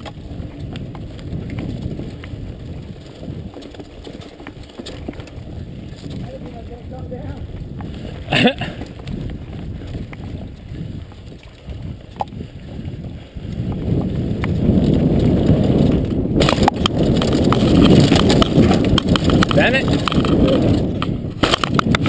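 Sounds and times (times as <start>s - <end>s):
bike rattling over bumps: 0.0s - 22.0s
bike tyres rumbling on dirt: 0.0s - 22.0s
wind on microphone: 0.0s - 22.0s.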